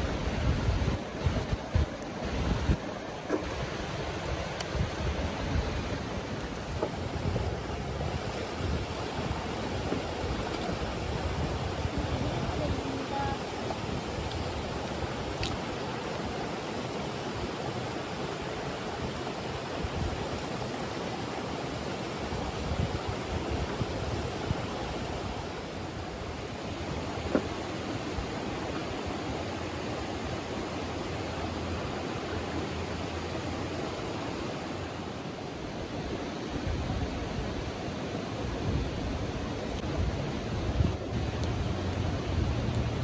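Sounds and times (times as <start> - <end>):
stream water rushing over rocks: 0.0 - 43.0.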